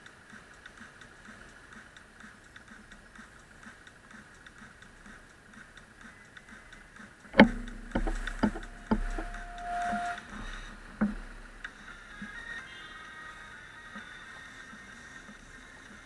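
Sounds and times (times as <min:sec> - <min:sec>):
rapid faint ticking: 0:00.0 - 0:16.0
sharp knocks: 0:07.4 - 0:11.6.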